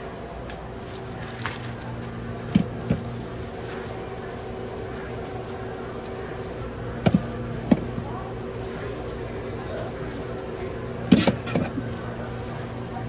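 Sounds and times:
refrigerated counter hum: 0:00.0 - 0:13.0.

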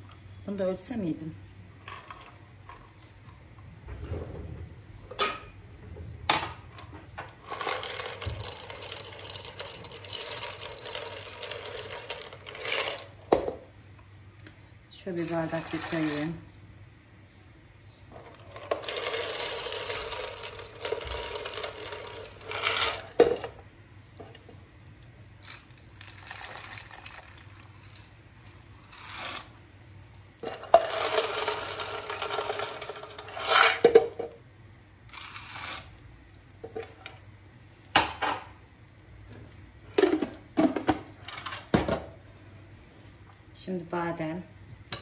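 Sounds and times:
peanuts rattling into a glass: 0:07.4 - 0:13.4, 0:15.2 - 0:16.4, 0:18.3 - 0:23.6, 0:25.4 - 0:29.5, 0:30.4 - 0:34.0, 0:35.1 - 0:35.9.

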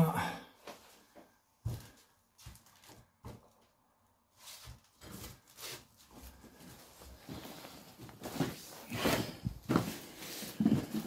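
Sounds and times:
footsteps crunching over rubble: 0:00.8 - 0:03.7.

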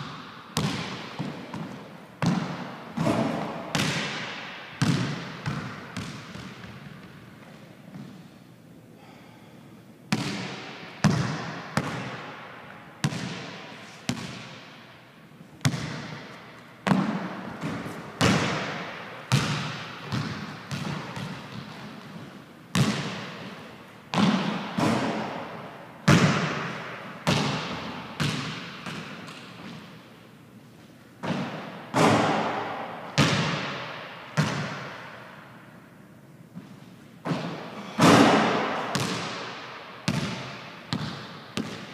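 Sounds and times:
basketball bouncing on wooden floor: 0:00.0 - 0:07.2, 0:10.1 - 0:12.2, 0:13.0 - 0:14.7, 0:15.6 - 0:23.5, 0:24.1 - 0:25.5, 0:26.1 - 0:29.9, 0:31.2 - 0:35.0, 0:36.6 - 0:41.9.

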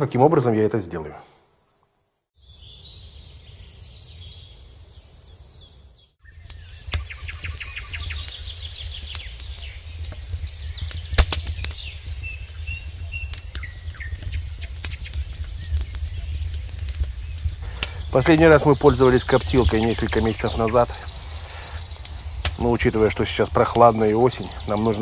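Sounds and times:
birds chirping: 0:02.4 - 0:25.0
wood fire crackling and popping: 0:06.2 - 0:25.0.

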